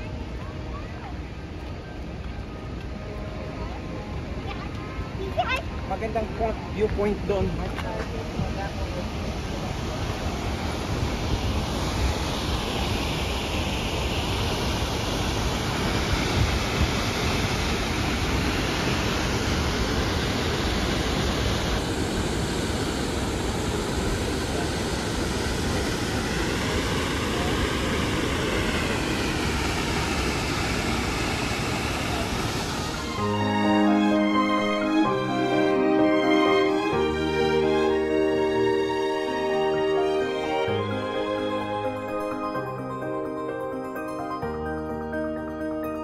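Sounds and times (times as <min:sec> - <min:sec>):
waterfall rushing: 0:00.0 - 0:46.0.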